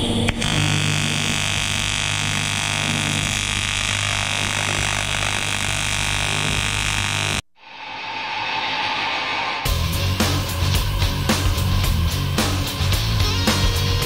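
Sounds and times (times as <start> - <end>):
welding arc buzzing hiss: 0.0 - 7.4.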